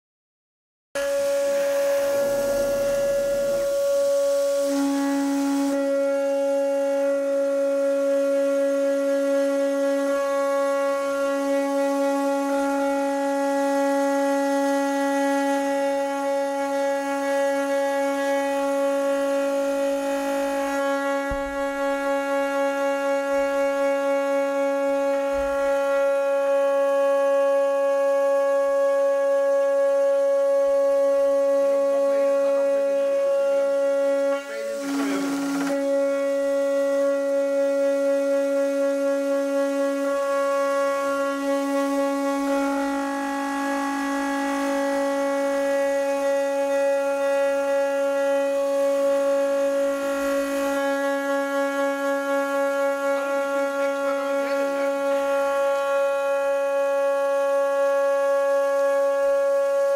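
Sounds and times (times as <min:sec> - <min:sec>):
router spindle milling metal: 0:01.0 - 0:05.8, 0:34.2 - 0:36.1.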